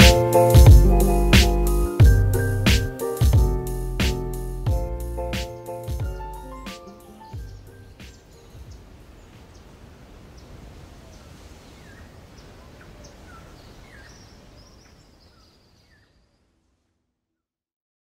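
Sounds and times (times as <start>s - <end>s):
small birds chirping: 3.0s - 16.5s.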